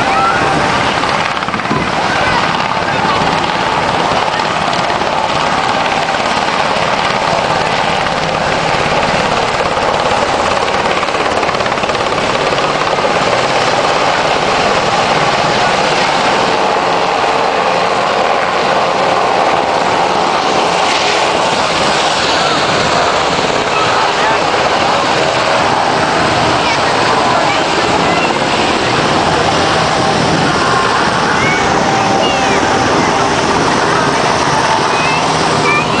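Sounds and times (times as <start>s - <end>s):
helicopter rotor and turbine: 0.0s - 36.0s.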